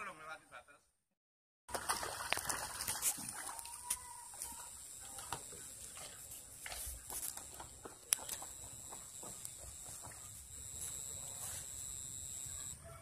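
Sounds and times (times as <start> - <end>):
steady high-pitched hiss: 4.3 - 12.7.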